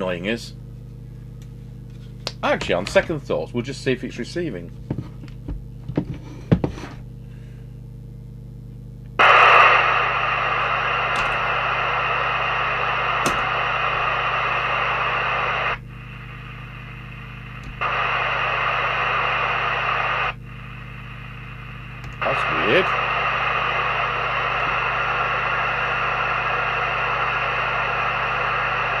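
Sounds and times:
low hum: 6.9 - 29.0
radio clicks: 9.2 - 29.0
radio static hiss: 9.2 - 29.0.

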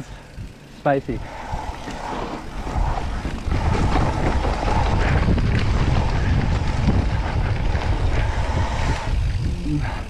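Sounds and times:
bike rattling over bumps: 0.0 - 10.0
steady buzz: 0.0 - 10.0
wind buffeting microphone: 0.0 - 10.0.

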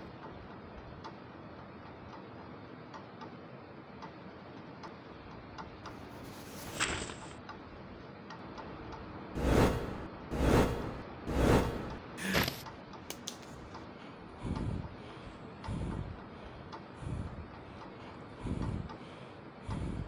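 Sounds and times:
loud whooshing: 9.4 - 12.4
short swish: 9.4 - 12.6.

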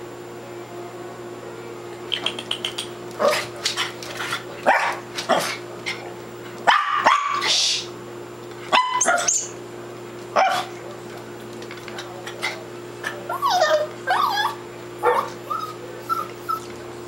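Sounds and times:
puppy barking: 4.7 - 5.6, 6.6 - 7.5, 8.7 - 9.5, 10.4 - 10.8, 13.0 - 16.7.

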